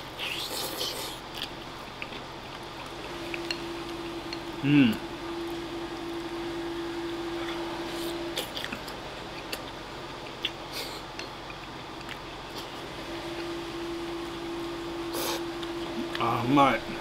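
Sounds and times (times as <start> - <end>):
person chewing: 0.1 - 4.5, 7.4 - 12.8.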